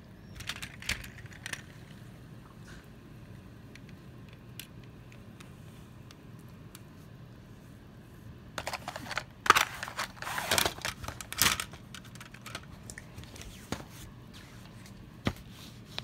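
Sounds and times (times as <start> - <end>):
plastic toys rustling and clattering: 0.3 - 2.0, 8.6 - 16.0
plastic toys clicking: 0.4 - 1.7, 8.6 - 12.6.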